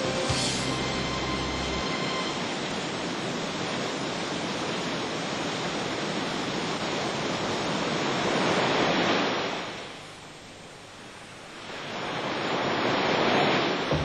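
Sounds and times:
waterfall rushing over rocks: 0.0 - 10.2.

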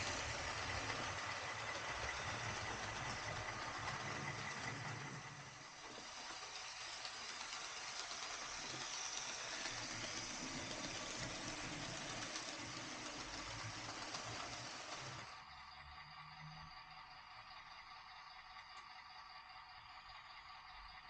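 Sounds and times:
hiss of wheels on track: 0.0 - 15.4
model diesel engine throb: 0.0 - 21.0.

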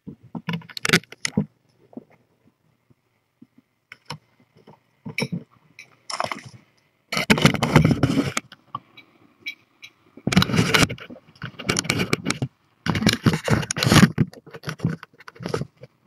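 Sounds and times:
rubbing against microphone: 7.1 - 8.5, 10.2 - 16.0.

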